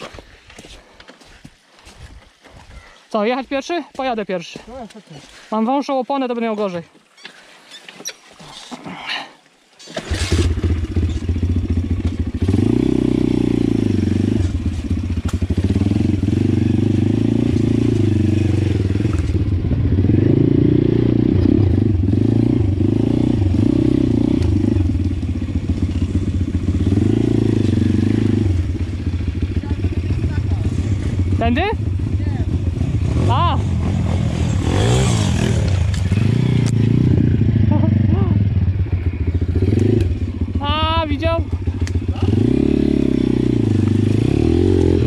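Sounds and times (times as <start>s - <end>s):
motorbike engine revving: 9.9s - 45.0s.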